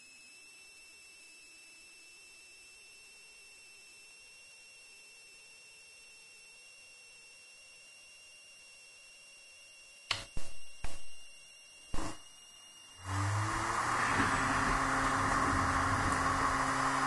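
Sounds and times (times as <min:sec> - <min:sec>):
sharp knocks: 0:11.9 - 0:12.2
cd drive spinning and whirring: 0:12.0 - 0:17.0.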